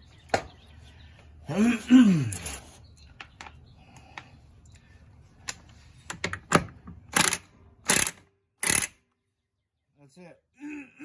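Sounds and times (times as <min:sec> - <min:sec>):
impact wrench bursts: 0:07.1 - 0:09.0.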